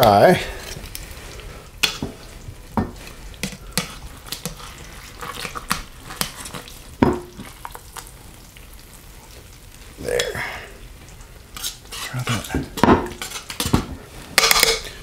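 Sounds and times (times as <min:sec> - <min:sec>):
metal tongs clicking and scraping: 0:14.4 - 0:14.9.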